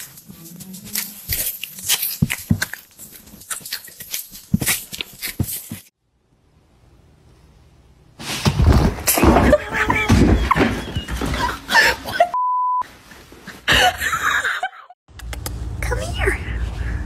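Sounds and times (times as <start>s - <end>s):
censor bleep: 12.4s - 12.8s.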